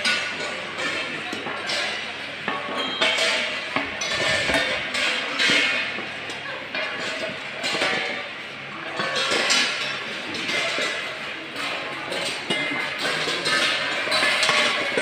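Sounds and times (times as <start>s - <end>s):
steel plates clinking: 0.0s - 8.2s.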